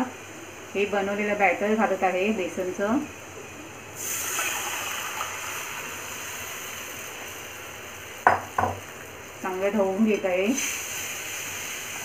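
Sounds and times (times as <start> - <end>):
batter sizzling in hot oil: 3.8 - 12.0.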